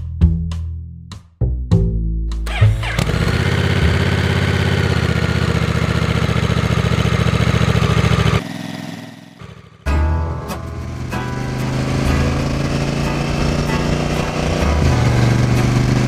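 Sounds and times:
motorcycle engine idling: 0:02.5 - 0:09.9, 0:10.6 - 0:16.0.

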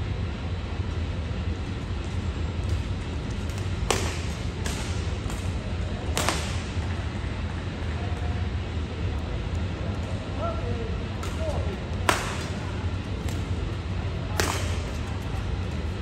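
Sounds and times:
low hum of hall: 0:00.0 - 0:16.0
rackets hitting shuttlecock: 0:02.6 - 0:07.2, 0:11.2 - 0:16.0.

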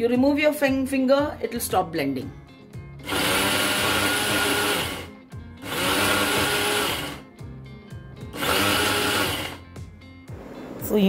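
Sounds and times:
blender grinding: 0:03.0 - 0:07.3, 0:08.3 - 0:09.6.

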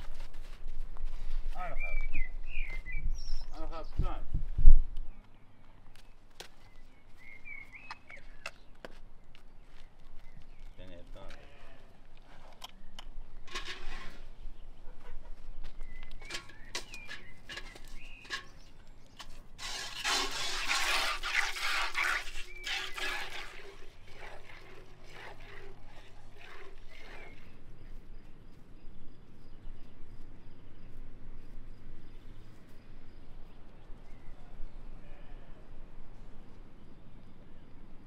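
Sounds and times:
bird calls: 0:01.6 - 0:04.0, 0:05.0 - 0:11.0, 0:14.4 - 0:19.4, 0:22.3 - 0:31.0
milk squirting from cow's teats: 0:19.2 - 0:27.6
milk pouring into metal bucket: 0:19.6 - 0:27.4.

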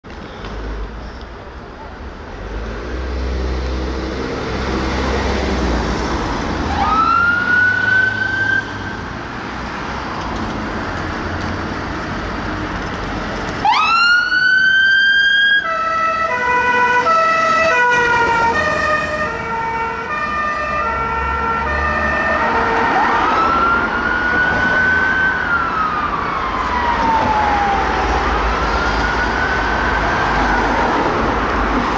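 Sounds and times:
vehicle engine and traffic rumble: 0:00.0 - 0:31.9
fire engine siren: 0:06.6 - 0:09.1, 0:13.6 - 0:31.9.

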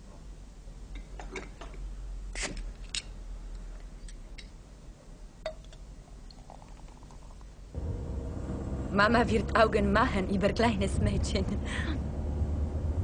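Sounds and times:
low hum: 0:07.7 - 0:13.0.

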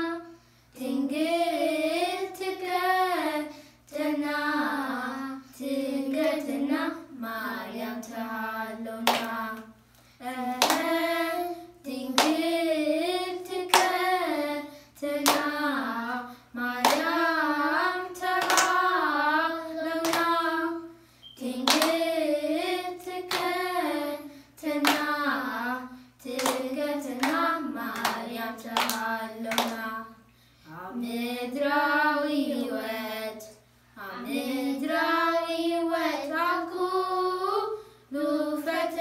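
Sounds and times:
children singing in unison: 0:00.0 - 0:30.1, 0:34.0 - 0:39.0
hands clapping: 0:09.0 - 0:09.4, 0:10.6 - 0:10.9, 0:12.2 - 0:12.4, 0:13.7 - 0:14.0, 0:15.2 - 0:15.6, 0:16.8 - 0:17.1, 0:18.4 - 0:18.9, 0:20.0 - 0:20.4, 0:21.6 - 0:22.0, 0:23.3 - 0:23.6, 0:24.8 - 0:25.2, 0:26.4 - 0:29.8.

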